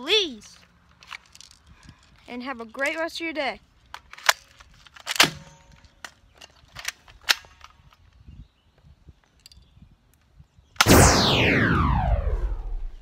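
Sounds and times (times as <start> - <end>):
airsoft gun cocking and firing: 3.9 - 8.0
loud sound sweeping down in pitch: 10.8 - 13.0.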